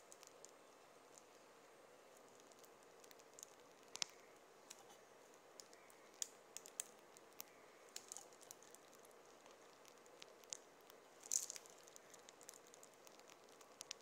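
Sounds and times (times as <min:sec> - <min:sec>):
plastic piping bag crackling: 0:05.4 - 0:14.0.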